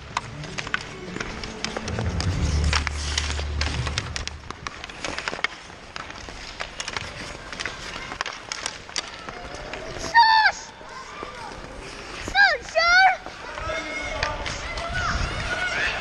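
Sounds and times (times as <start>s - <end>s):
hockey sticks and puck clacking: 0.0s - 16.0s
ice skates scraping: 0.0s - 16.0s
low rumble: 0.3s - 5.1s.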